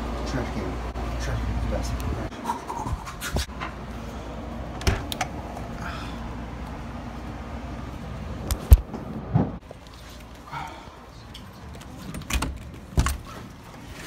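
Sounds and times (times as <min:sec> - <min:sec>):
steady low hum: 0:00.0 - 0:14.0
handling knocks and bumps: 0:11.6 - 0:13.6.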